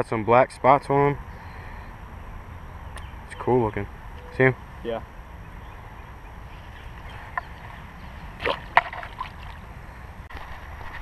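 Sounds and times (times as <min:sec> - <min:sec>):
fish splash in water: 0:08.4 - 0:09.6.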